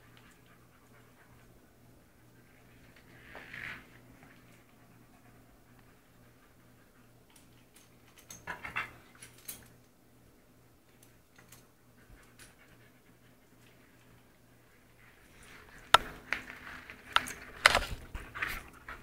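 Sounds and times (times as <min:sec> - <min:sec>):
dogs panting: 0:00.0 - 0:02.7, 0:04.4 - 0:09.2, 0:11.9 - 0:15.7.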